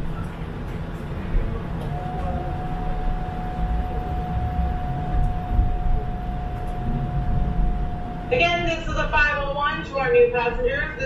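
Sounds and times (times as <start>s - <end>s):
streetcar low rumble: 0.0s - 11.0s
steady single tone: 1.8s - 9.4s.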